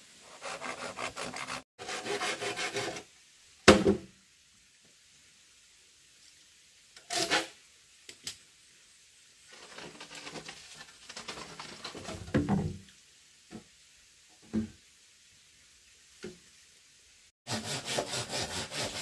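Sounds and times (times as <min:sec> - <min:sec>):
bamboo poles scraping and rattling: 0:07.0 - 0:07.6, 0:09.4 - 0:12.8.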